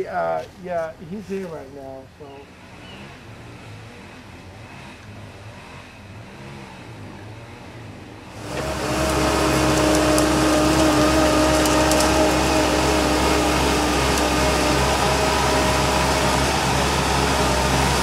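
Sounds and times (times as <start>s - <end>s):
steady engine whine: 1.5s - 18.0s
loader engine running: 8.3s - 18.0s.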